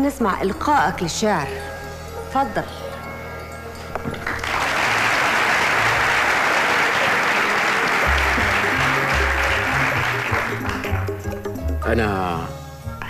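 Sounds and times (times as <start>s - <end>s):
audience applauding: 4.2s - 11.6s
background music with bass line: 8.0s - 13.0s.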